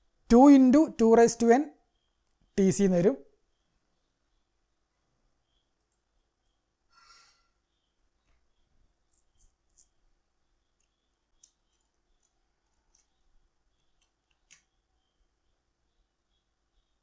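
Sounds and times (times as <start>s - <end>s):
small sharp clicks: 10.7s - 14.9s.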